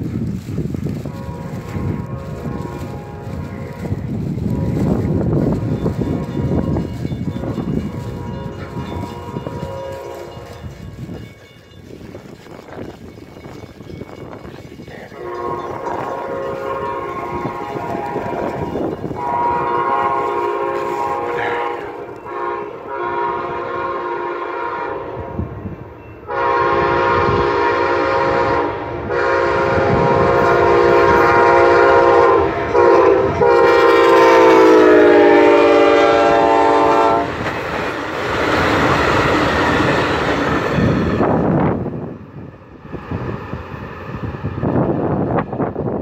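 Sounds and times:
train cars rumbling past: 0:00.0 - 0:46.0
train air horn: 0:01.0 - 0:10.7, 0:15.0 - 0:25.6, 0:26.2 - 0:37.5.

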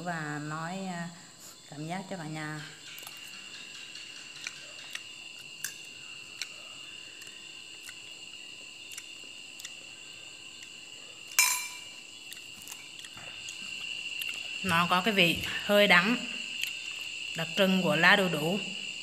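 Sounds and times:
crickets chirring: 0:00.0 - 0:19.0
fork clinking on ceramic plate: 0:11.4 - 0:11.9.

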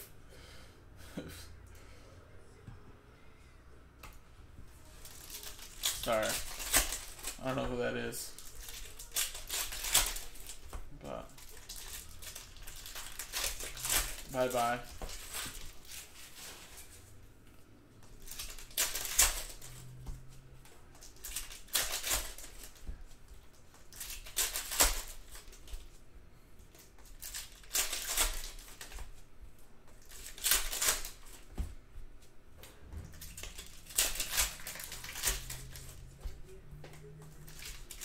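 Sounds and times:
plastic wrappers crinkling and tearing: 0:04.9 - 0:17.2, 0:18.0 - 0:26.0, 0:26.6 - 0:29.2, 0:29.9 - 0:31.6, 0:33.0 - 0:38.0.

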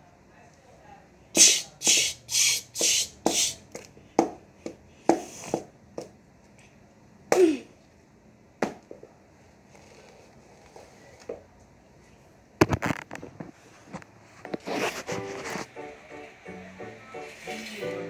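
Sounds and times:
blows striking a doll: 0:01.4 - 0:03.7.

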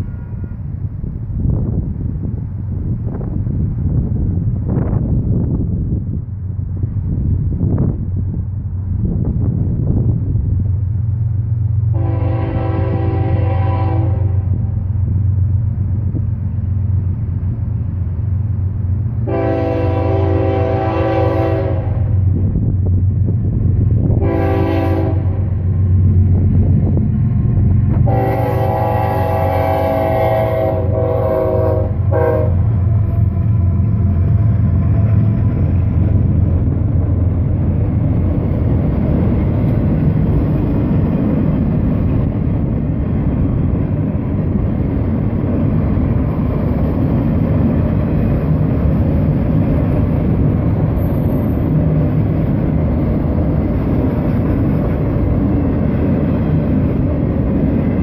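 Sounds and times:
locomotive horn blast: 0:00.0 - 0:00.7, 0:11.9 - 0:14.7, 0:19.2 - 0:22.2, 0:24.2 - 0:25.5, 0:28.0 - 0:35.2
freight cars rumbling past: 0:00.0 - 0:58.0.

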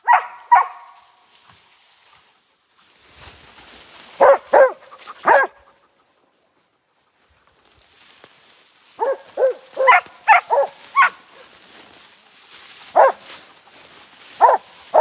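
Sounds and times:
dogs barking: 0:00.0 - 0:01.0, 0:04.2 - 0:06.2, 0:09.0 - 0:11.5, 0:12.9 - 0:13.5, 0:14.4 - 0:15.0.

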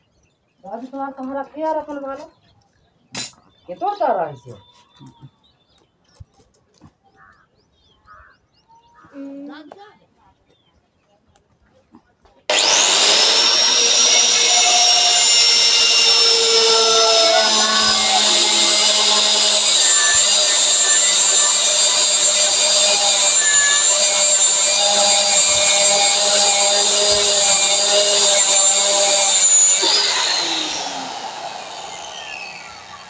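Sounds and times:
angle grinder cutting steel: 0:12.5 - 0:33.0.

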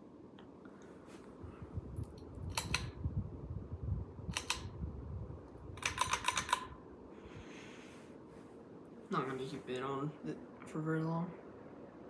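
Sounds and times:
low rumble: 0:01.4 - 0:05.8
pull-chain switch clicks: 0:02.1 - 0:03.0, 0:04.3 - 0:04.8, 0:05.8 - 0:06.7.

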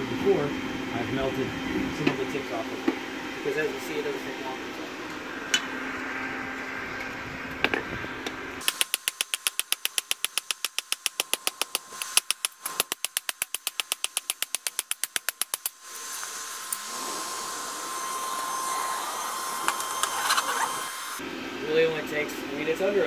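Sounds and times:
hammer striking hot steel: 0:08.6 - 0:15.8.

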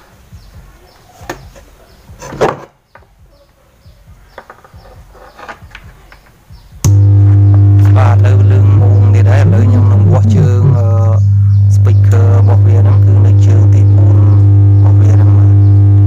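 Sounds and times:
faint knocks and handling noises: 0:00.6 - 0:03.6, 0:04.3 - 0:06.4
loud steady low drone: 0:06.8 - 0:16.0.

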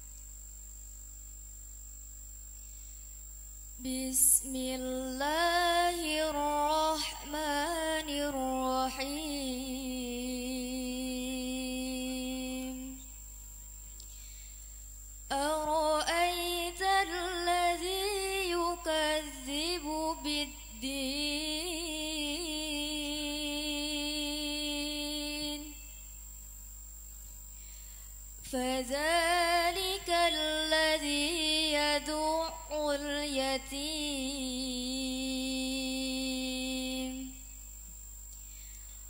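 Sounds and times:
woman chanting melodically: 0:03.8 - 0:13.2, 0:15.3 - 0:26.0, 0:28.4 - 0:37.6.

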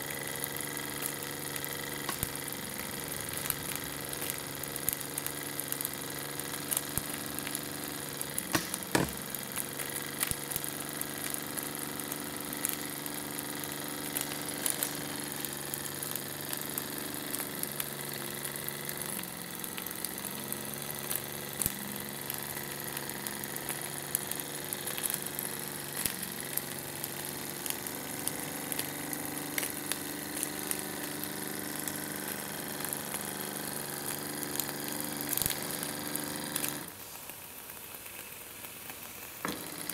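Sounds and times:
model steam engine running: 0:00.0 - 0:39.9
sharp knock: 0:08.6 - 0:09.2.

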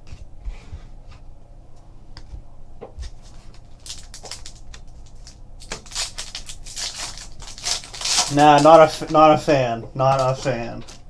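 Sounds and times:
foil wrapper crinkling: 0:03.3 - 0:11.0.

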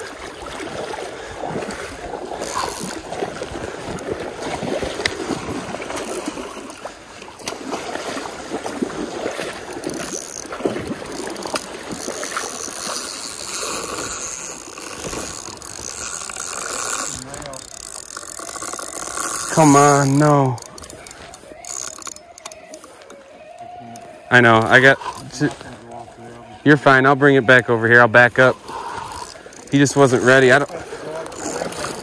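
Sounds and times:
stream water rushing: 0:00.0 - 0:32.0.

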